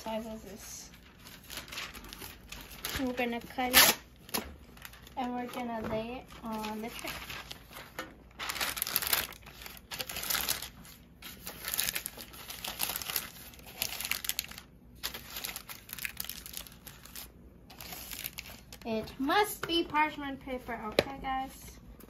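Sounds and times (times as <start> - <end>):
parchment paper crinkling: 0.0 - 19.0.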